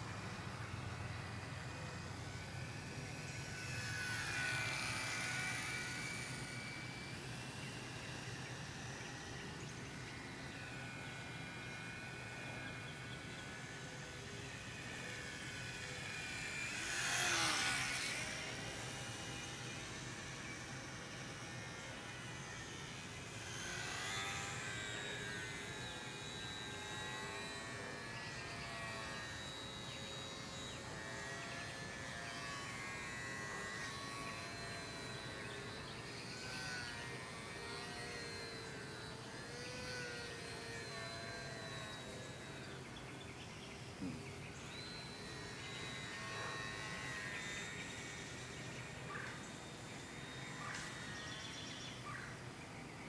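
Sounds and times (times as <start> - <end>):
model plane motor buzzing: 0.0 - 53.0.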